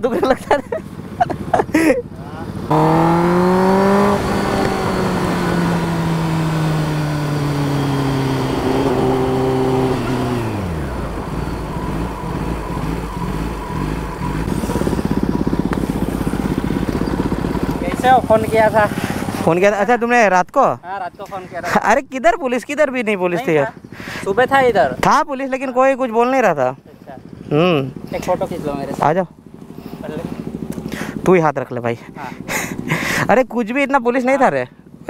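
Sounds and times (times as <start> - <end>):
motorcycle engine running: 0.0 - 20.2, 22.8 - 33.3.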